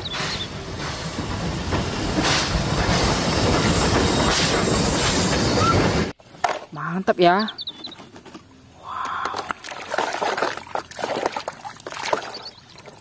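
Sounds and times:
steam train rumble and hiss: 0.0s - 6.1s.

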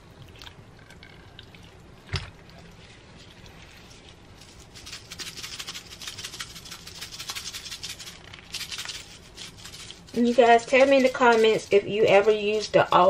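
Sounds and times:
hand rubbing and patting chicken: 4.6s - 13.0s.

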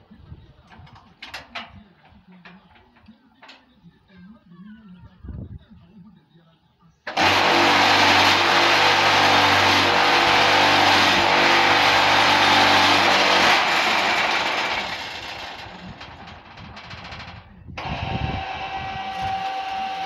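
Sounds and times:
vibrator motor humming and rattling: 7.1s - 20.0s.

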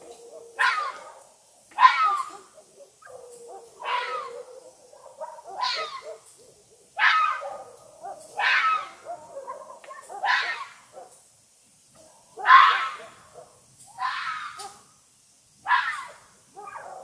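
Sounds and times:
fox calling: 0.1s - 10.9s, 12.4s - 14.8s.

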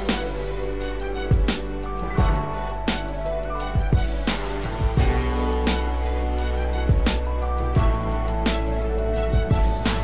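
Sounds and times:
kick drum hits: 2.2s - 2.5s, 3.8s - 4.2s, 4.8s - 5.4s, 6.9s - 7.2s, 7.8s - 8.1s, 9.4s - 9.9s.

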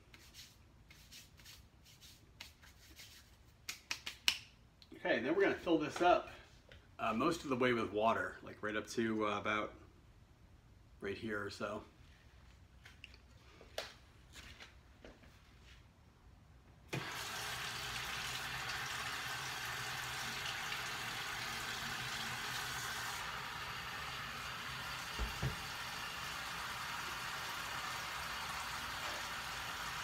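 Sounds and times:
tap water running into pot: 16.9s - 30.0s.

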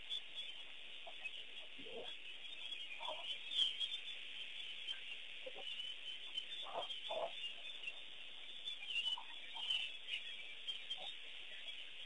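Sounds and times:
high-pitched birdsong chatter: 0.0s - 12.0s
fowl-like bird calls: 0.4s - 4.1s, 4.9s - 8.0s.

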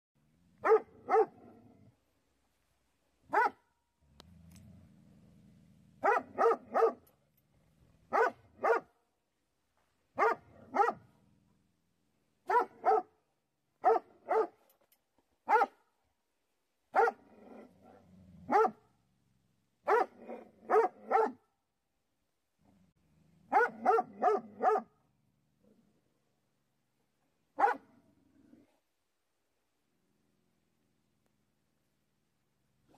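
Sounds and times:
coyote barking: 23.5s - 24.9s.

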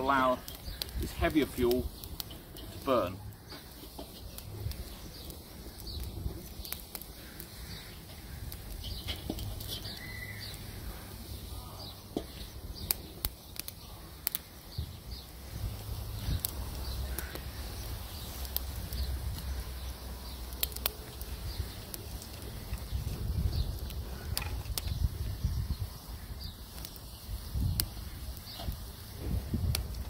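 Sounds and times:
wood fire crackling and popping: 0.0s - 30.0s
faint bird chirps: 6.7s - 12.1s.

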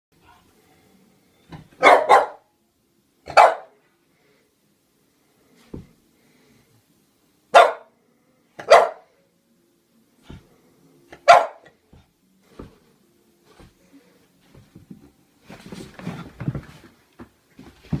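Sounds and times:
dog barking: 1.8s - 2.5s, 3.3s - 3.8s, 7.5s - 8.0s, 8.6s - 9.1s, 11.2s - 11.7s.

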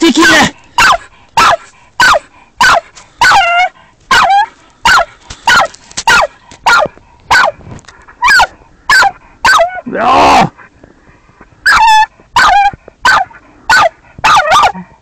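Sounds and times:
dog barking: 0.8s - 7.6s, 8.2s - 9.8s, 11.7s - 14.8s.

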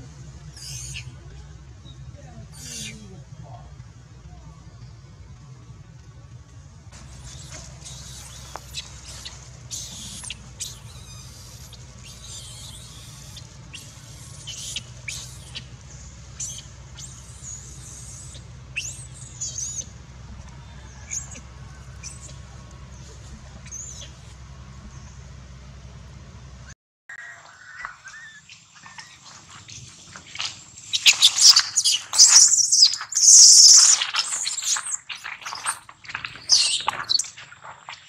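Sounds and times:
steady low hum: 0.0s - 26.8s
baby monkey squealing: 0.6s - 1.1s, 2.5s - 3.1s, 7.1s - 15.8s, 16.4s - 19.9s, 21.0s - 21.4s, 22.0s - 22.4s, 23.6s - 24.3s, 27.2s - 29.3s, 30.9s - 35.8s, 36.4s - 37.3s.

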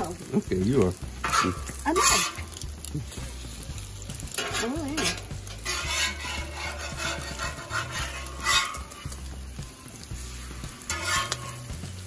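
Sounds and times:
bacon and eggs sizzling in a pan: 0.0s - 12.0s
utensil scraping a pan: 1.2s - 2.6s, 4.2s - 9.6s, 10.2s - 12.0s.

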